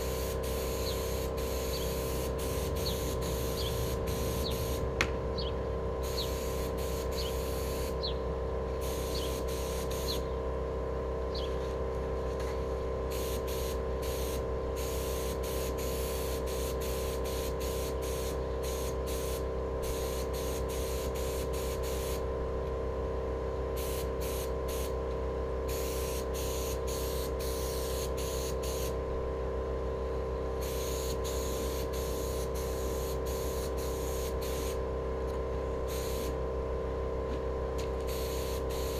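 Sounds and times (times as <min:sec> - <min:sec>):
air spray gun hissing: 0:00.0 - 0:10.3, 0:13.1 - 0:22.3, 0:23.8 - 0:25.0, 0:25.7 - 0:29.0, 0:30.6 - 0:34.9, 0:35.8 - 0:36.4, 0:37.8 - 0:38.9
steady hum: 0:00.0 - 0:38.9.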